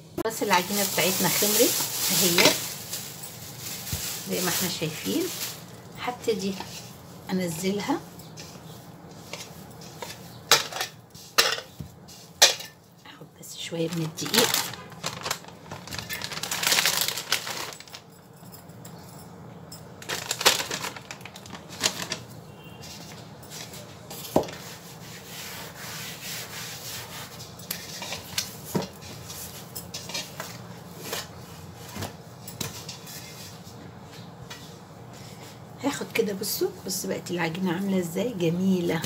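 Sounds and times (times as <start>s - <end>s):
hands rubbing and scraping dough: 0.3s - 12.5s, 22.8s - 32.0s, 32.6s - 37.9s.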